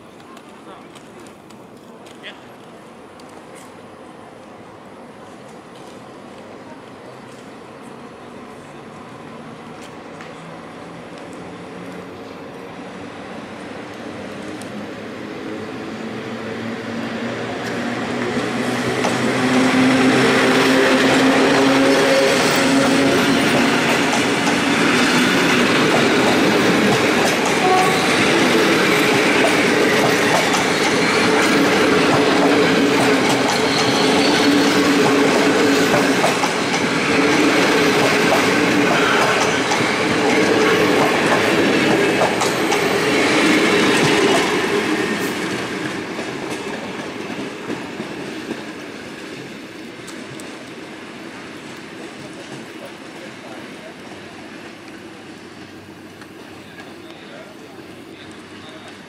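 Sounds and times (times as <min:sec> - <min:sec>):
electric locomotive passing: 0:00.0 - 0:59.0
train wheels clattering over rail joints: 0:18.8 - 0:48.8.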